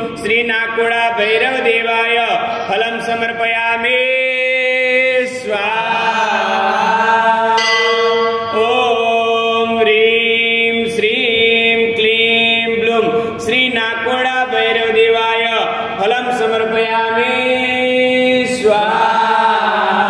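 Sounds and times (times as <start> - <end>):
mantra chanting: 0.0 - 20.0
musical drone: 7.6 - 9.5.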